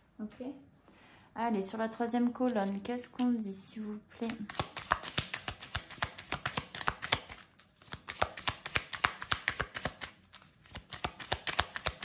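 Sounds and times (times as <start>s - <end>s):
cards shuffled by hand: 2.2s - 3.5s, 4.2s - 12.0s.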